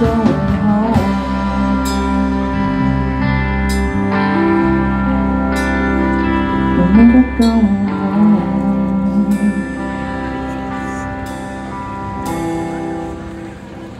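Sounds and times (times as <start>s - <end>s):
man singing: 0.0s - 3.2s, 6.6s - 11.0s
rock band playing: 0.0s - 13.9s.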